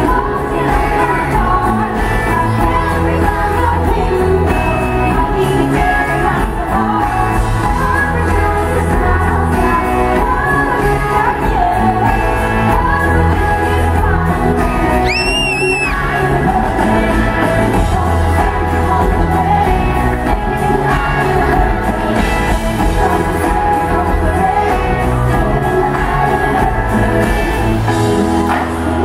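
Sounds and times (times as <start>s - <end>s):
woman singing over band: 0.0s - 29.0s
high whistle: 15.0s - 16.0s.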